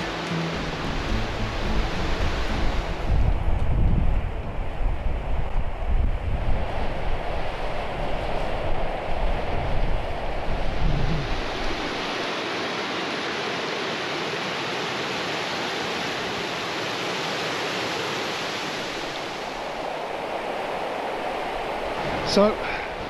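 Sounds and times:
river rushing over rocks: 0:00.0 - 0:03.5, 0:10.6 - 0:23.0
wind rumble on microphone: 0:00.0 - 0:13.3, 0:18.3 - 0:23.0.

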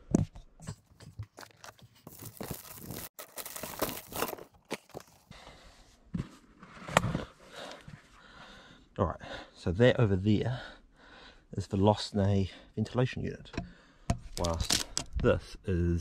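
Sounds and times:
rustling and crunching: 0:00.8 - 0:05.3, 0:14.3 - 0:15.0.

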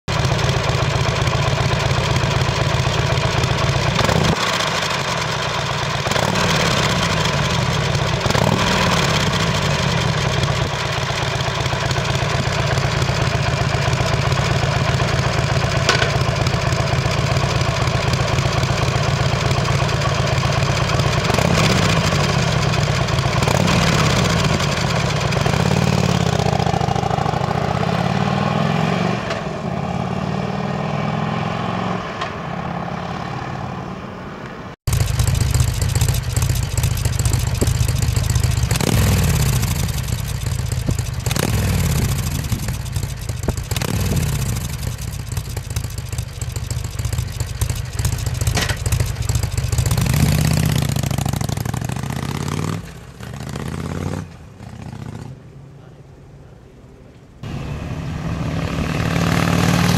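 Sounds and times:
motorcycle revving: 0:00.0 - 0:56.1, 0:57.4 - 0:59.9
motorcycle engine idling: 0:00.1 - 0:27.8, 0:34.9 - 0:53.6.

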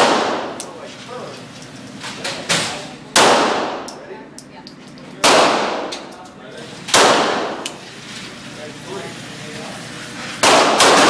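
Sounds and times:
pistol shots echoing indoors: 0:00.0 - 0:00.7, 0:03.1 - 0:04.0, 0:05.2 - 0:06.1, 0:06.9 - 0:07.8, 0:10.4 - 0:11.0
faint clinks: 0:03.9 - 0:05.2.

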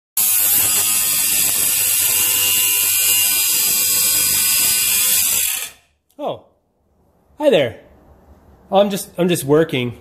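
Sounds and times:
angle grinder cutting steel: 0:00.2 - 0:05.9.

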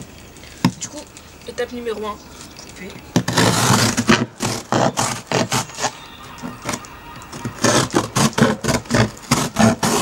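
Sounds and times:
knife sawing through cardboard: 0:03.3 - 0:05.9, 0:07.6 - 0:10.0.

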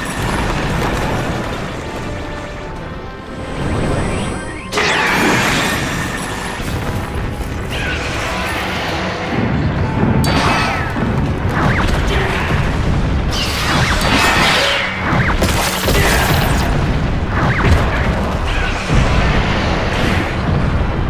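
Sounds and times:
dramatic orchestral music: 0:00.0 - 0:21.0
heavy booms and crashes: 0:05.1 - 0:21.0.

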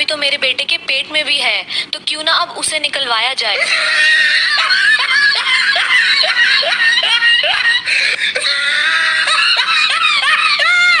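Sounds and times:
shrill squealing laughter or screaming: 0:03.6 - 0:11.0.

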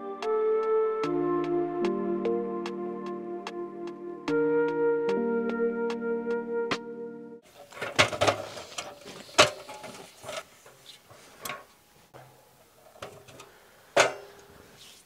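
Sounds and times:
metal stepladder clanking: 0:07.6 - 0:14.5.

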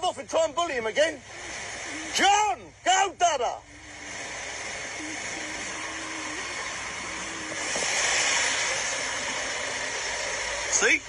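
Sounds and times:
road and wind noise: 0:03.8 - 0:10.8.

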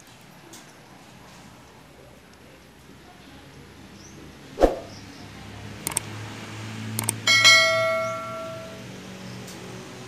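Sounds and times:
mouse clicks: 0:05.8 - 0:06.0
notification bell ding: 0:07.3 - 0:08.8.

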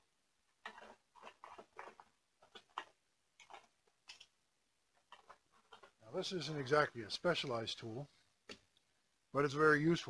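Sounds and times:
small objects clicking and rattling: 0:00.6 - 0:04.3, 0:05.0 - 0:06.0.

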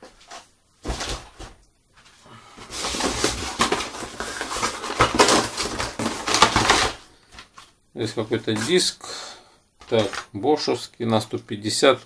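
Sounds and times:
packaging rustling: 0:02.6 - 0:07.8, 0:09.8 - 0:10.4.

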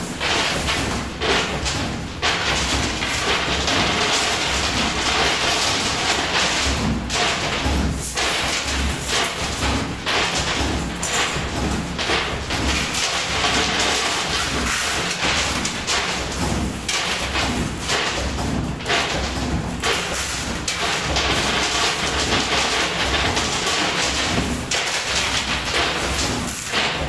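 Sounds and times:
coin pusher mechanical din: 0:00.0 - 0:27.0
coins clattering: 0:12.8 - 0:16.1, 0:19.8 - 0:26.9.

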